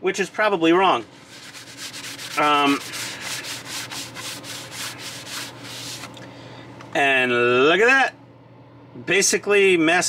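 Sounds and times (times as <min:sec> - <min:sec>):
paper towel rubbing plastic: 0:01.1 - 0:06.2.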